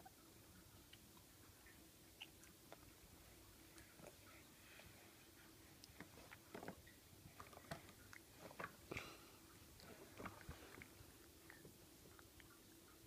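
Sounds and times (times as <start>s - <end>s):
baby chewing wet clicks: 0.6s - 3.0s, 5.7s - 13.0s.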